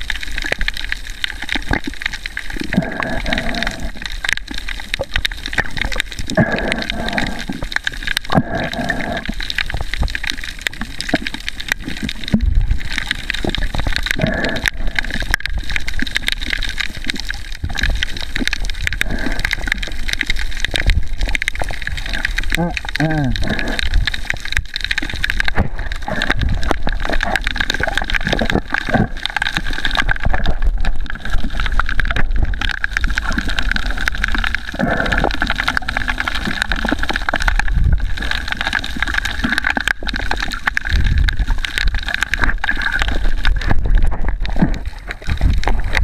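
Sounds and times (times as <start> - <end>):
muffled underwater sloshing: 0.0 - 46.0.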